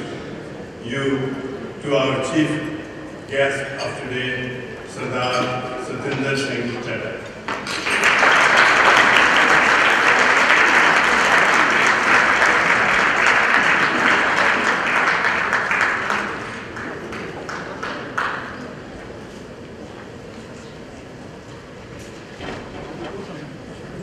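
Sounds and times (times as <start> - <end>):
audience applauding: 7.6 - 18.9.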